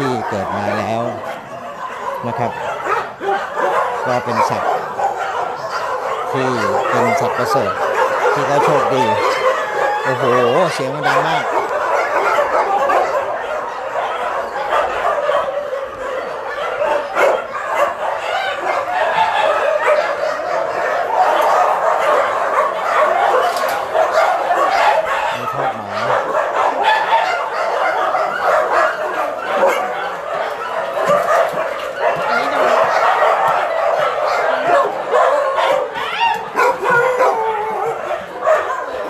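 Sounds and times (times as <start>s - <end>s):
many dogs barking and whining: 0.0s - 39.0s.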